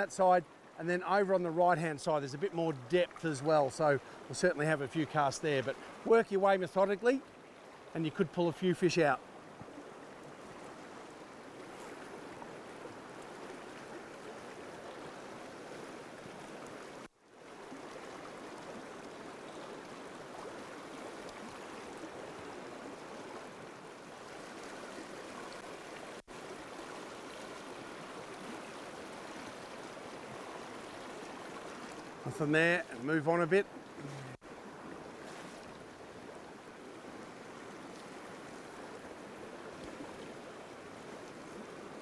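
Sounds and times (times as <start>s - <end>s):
stream rushing over stones: 0.0s - 42.0s.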